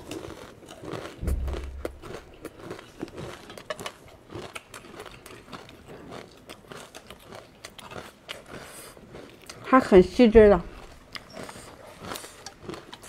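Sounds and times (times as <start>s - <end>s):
crunching crispy crackers: 0.0s - 13.0s
low thump: 1.2s - 3.2s.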